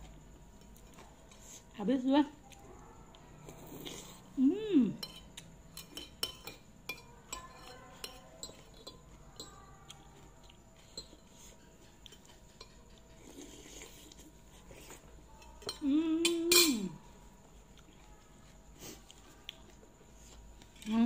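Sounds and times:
cutlery clinking on a plate: 5.0s - 9.5s, 15.6s - 17.0s.

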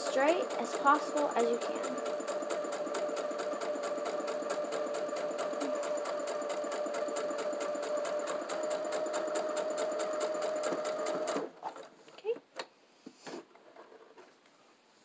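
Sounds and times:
electric sewing machine running: 0.0s - 11.6s.

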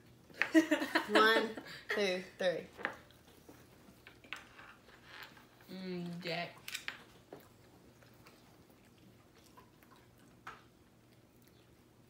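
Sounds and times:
people chewing: 2.7s - 5.8s, 6.7s - 12.0s.

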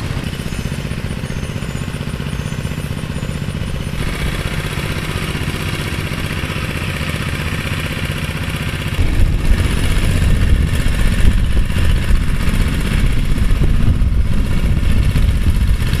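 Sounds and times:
power trowel engine running: 0.0s - 16.0s.

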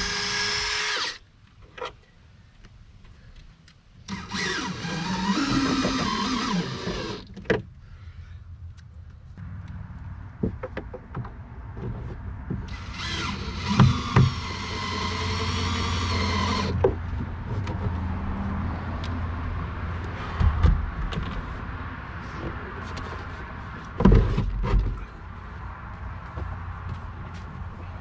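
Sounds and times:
cordless drill driving screw: 0.0s - 1.2s, 4.1s - 7.3s, 12.7s - 16.8s.

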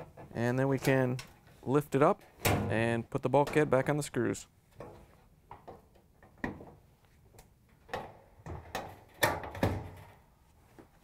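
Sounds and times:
sheet-metal panel knocks and clunks: 7.9s - 10.2s.

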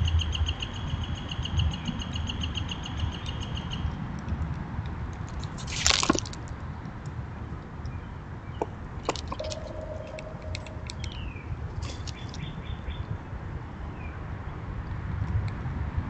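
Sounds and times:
steady low rumble: 9.4s - 11.8s.

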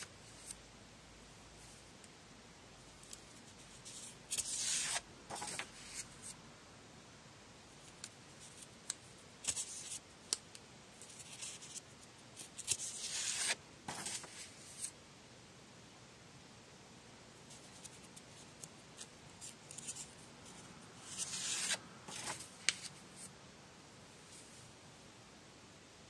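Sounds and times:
paper sheets rustling: 4.0s - 6.1s, 12.6s - 14.9s, 21.0s - 23.0s
page turning: 4.3s - 6.1s, 12.6s - 14.9s, 21.0s - 23.0s.

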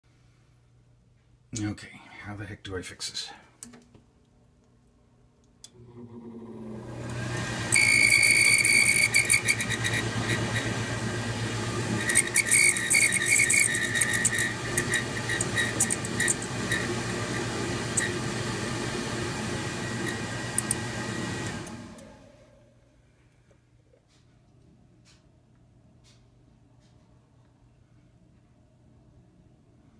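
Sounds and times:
blower humming with whistling squeal: 6.0s - 22.7s.

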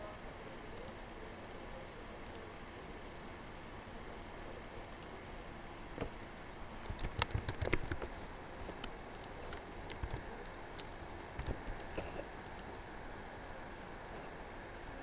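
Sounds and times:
steady low hiss: 0.0s - 15.0s
keyboard typing: 6.8s - 12.8s.

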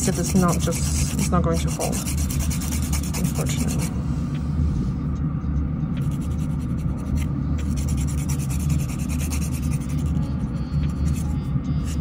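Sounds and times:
nail file rasping: 0.0s - 3.8s, 7.0s - 10.1s
fan humming: 0.0s - 12.0s.

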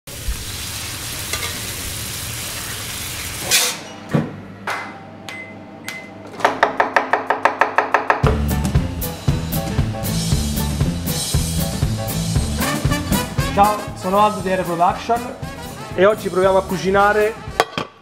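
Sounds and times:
food sizzling: 0.1s - 3.6s
music with drums and bass: 8.2s - 17.6s.

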